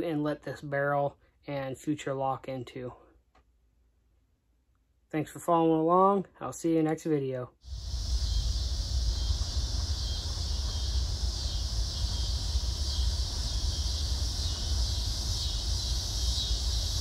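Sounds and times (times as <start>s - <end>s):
insects chirring: 7.6s - 17.0s
wind rumble on microphone: 7.7s - 17.0s.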